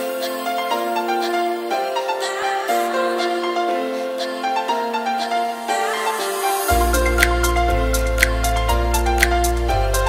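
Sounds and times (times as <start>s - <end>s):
held electronic notes melody: 0.0s - 10.0s
deep bass: 6.7s - 10.0s.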